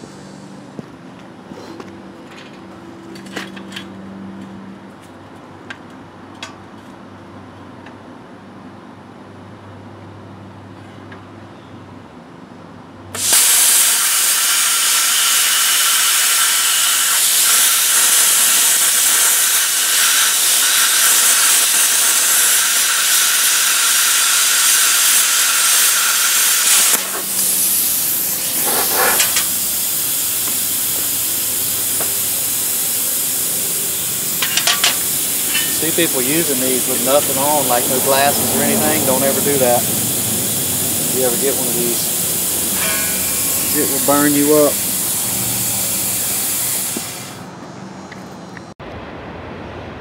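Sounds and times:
plasma cutter hissing: 13.2 - 47.5.

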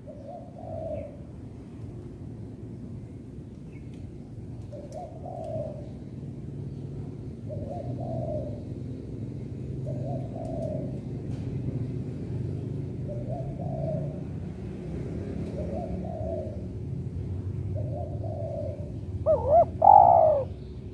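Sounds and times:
dove cooing: 0.0 - 1.3, 4.6 - 6.2, 7.0 - 11.7, 12.8 - 20.6.

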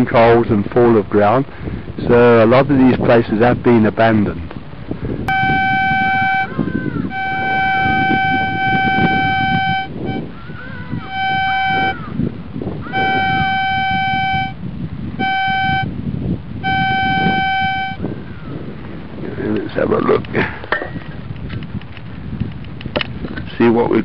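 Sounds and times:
metal detector beeping: 5.3 - 10.4, 11.0 - 12.0, 12.9 - 14.6, 15.2 - 15.9, 16.6 - 18.0.

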